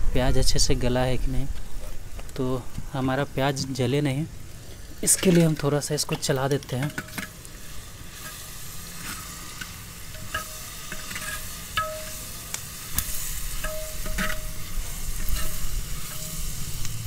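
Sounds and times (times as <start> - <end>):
onions sizzling in oil: 2.9 - 17.0
metal spatula scraping pot: 5.0 - 7.4, 8.1 - 16.8.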